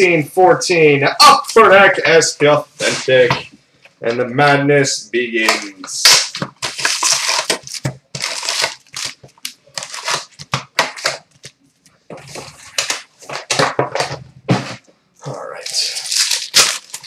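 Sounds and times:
foil packs crinkling: 6.0s - 11.5s, 15.6s - 17.0s.

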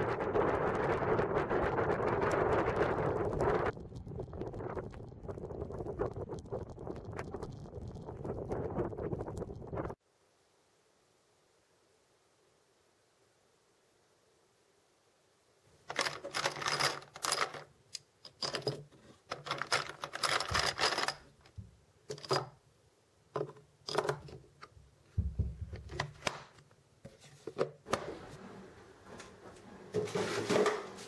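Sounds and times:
cartridges rattling in plastic boxes: 15.9s - 17.7s, 18.3s - 21.4s.

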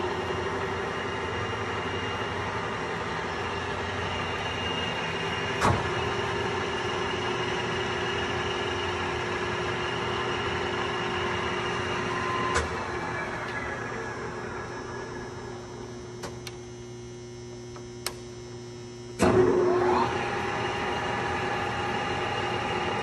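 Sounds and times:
lathe running: 0.0s - 16.2s.

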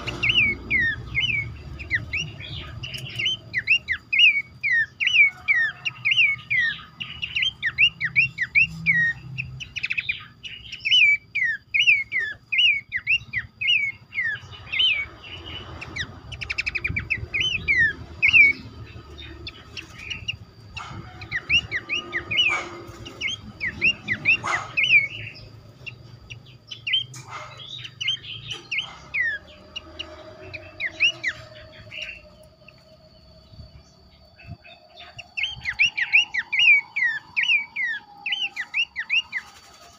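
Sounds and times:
birds calling in chorus: 0.0s - 39.9s.

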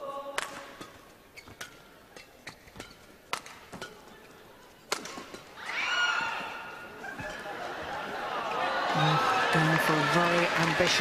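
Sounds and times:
racket striking shuttlecock: 0.3s - 4.2s, 4.8s - 5.5s
crowd noise: 3.1s - 11.0s.

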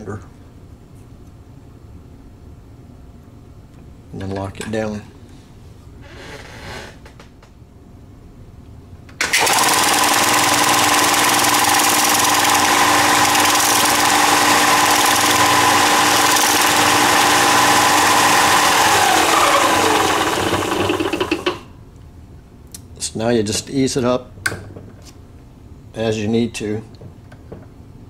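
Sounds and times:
belt sander running: 9.2s - 21.7s.

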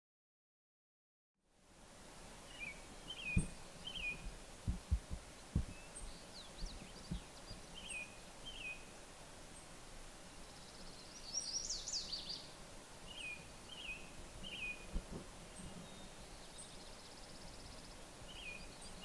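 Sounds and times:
outdoor hiss: 1.4s - 19.0s
small birds chirping: 2.4s - 19.0s
short low thumps: 3.3s - 3.6s, 4.2s - 5.8s.

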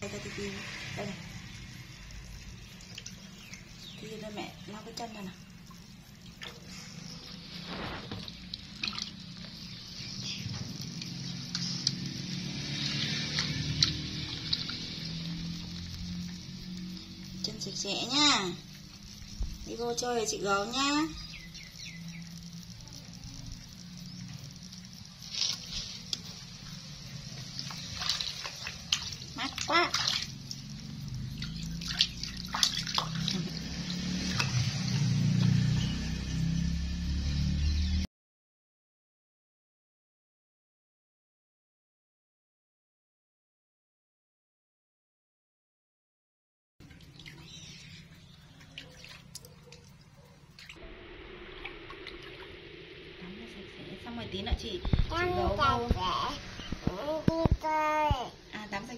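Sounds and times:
water splashing in plastic basin: 1.4s - 36.6s, 46.8s - 50.8s.

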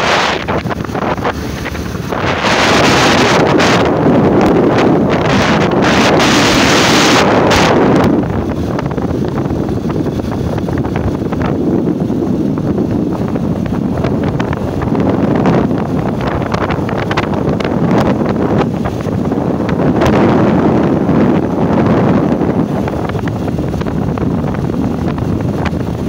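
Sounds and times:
dense low rumble: 0.0s - 26.0s
wind buffeting microphone: 0.0s - 26.0s.

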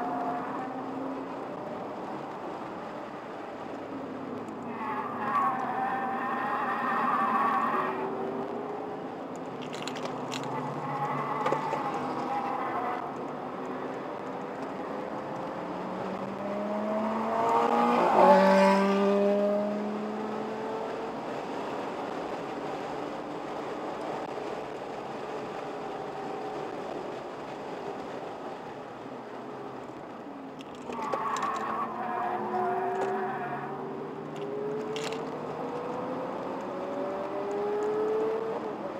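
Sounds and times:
car engines at speed: 0.0s - 38.9s
car passing close by: 15.8s - 20.9s.

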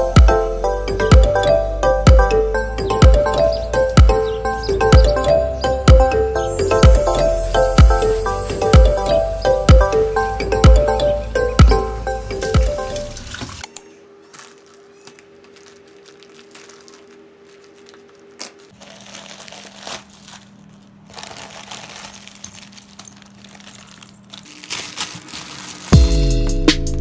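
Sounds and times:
background music: 0.0s - 13.6s, 26.0s - 27.0s
plastic bags crinkling: 13.0s - 26.0s.

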